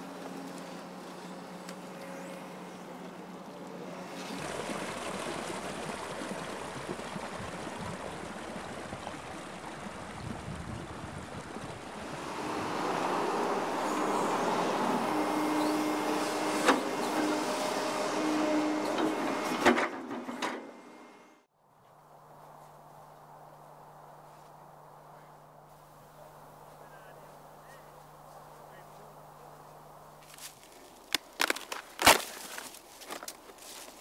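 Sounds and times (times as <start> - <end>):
water gushing from pipe: 4.1 - 18.9
excavator whining: 11.8 - 21.4.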